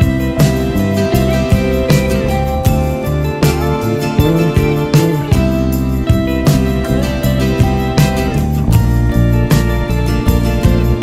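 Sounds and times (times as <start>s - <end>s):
background music with beat: 0.0s - 11.0s.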